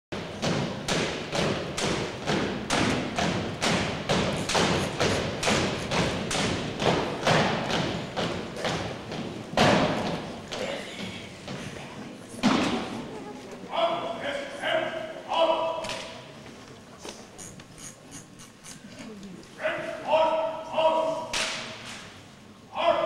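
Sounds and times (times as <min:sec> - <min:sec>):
boots striking gymnasium floor: 0:00.2 - 0:11.7.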